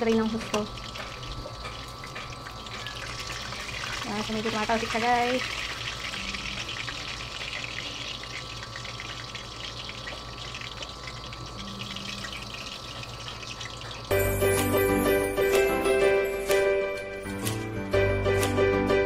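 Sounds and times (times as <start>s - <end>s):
oil sizzling in a pan: 0.0s - 16.6s
music: 14.1s - 19.0s.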